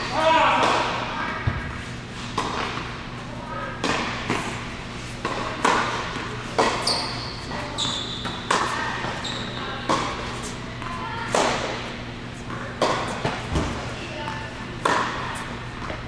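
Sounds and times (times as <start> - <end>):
tennis ball bouncing on hard court: 0.6 - 3.0, 3.8 - 4.6, 5.2 - 16.0
tennis ball struck by racquets: 3.8 - 4.6, 5.2 - 9.2, 9.8 - 16.0.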